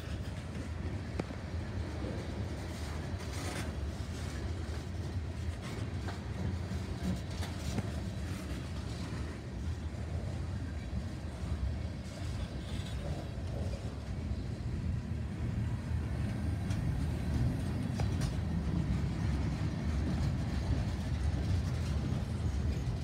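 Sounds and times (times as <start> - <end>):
freight train wheels rumbling on rails: 0.0 - 23.0.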